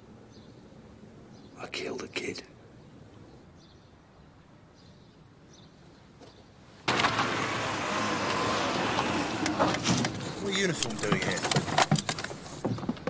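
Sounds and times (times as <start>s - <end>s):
road traffic noise: 0.0s - 13.0s
car running close by: 6.9s - 10.2s.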